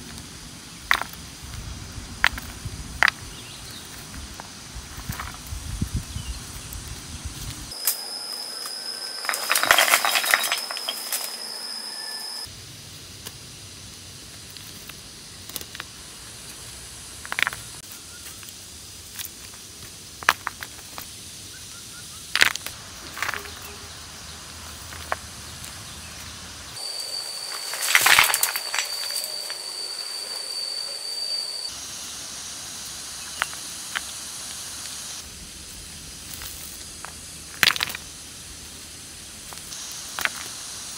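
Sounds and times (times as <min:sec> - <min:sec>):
stones clacking together: 0:00.8 - 0:01.6, 0:02.2 - 0:03.2, 0:09.2 - 0:11.3, 0:17.2 - 0:18.4, 0:19.1 - 0:21.1, 0:22.3 - 0:23.8, 0:24.8 - 0:25.3, 0:27.5 - 0:29.6, 0:36.2 - 0:38.1, 0:39.5 - 0:40.5
thin high tone: 0:07.7 - 0:12.5, 0:23.0 - 0:24.2, 0:25.9 - 0:31.8
stones clattering into basket: 0:09.2 - 0:11.3, 0:22.4 - 0:23.7, 0:27.5 - 0:29.6, 0:36.3 - 0:38.0.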